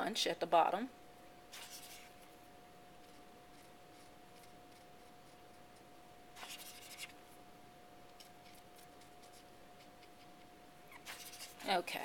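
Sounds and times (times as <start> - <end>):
felt pen scratching on rubber stamp: 1.5 - 2.2, 3.0 - 5.6, 6.4 - 7.2, 10.9 - 11.7.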